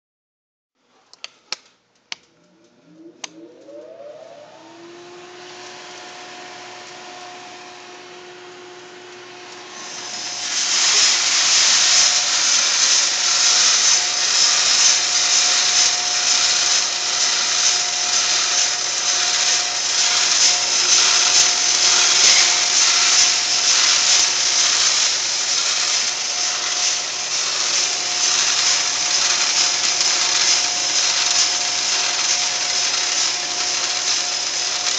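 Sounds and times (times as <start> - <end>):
clicks: 1.1 - 3.9
roaster motor humming: 2.4 - 34.9.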